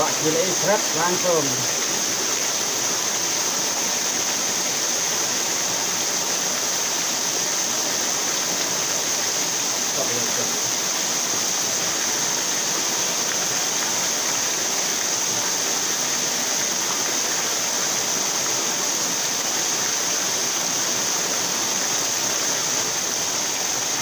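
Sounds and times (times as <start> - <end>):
river water flowing: 0.0 - 24.0.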